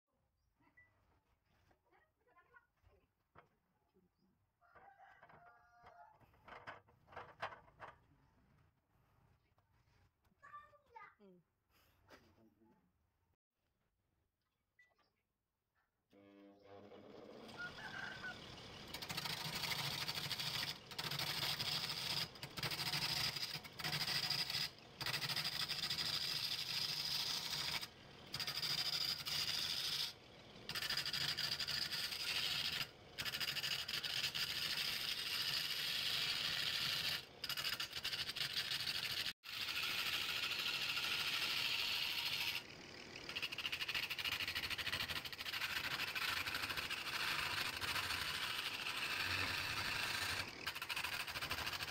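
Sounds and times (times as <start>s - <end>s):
lathe motor hum: 16.2s - 51.9s
turning tool cutting spinning wood: 16.2s - 51.9s.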